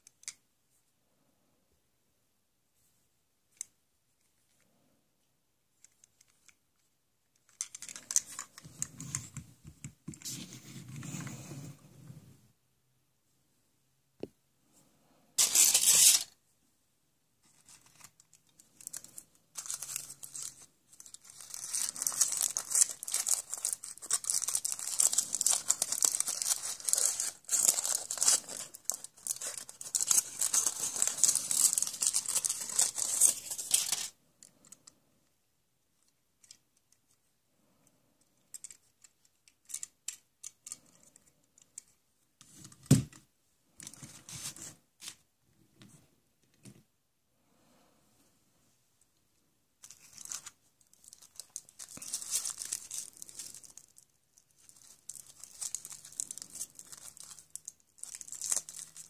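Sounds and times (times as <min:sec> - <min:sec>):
foil wrapping crinkling and tearing: 0:15.4 - 0:16.3, 0:18.8 - 0:34.1, 0:49.9 - 0:59.0.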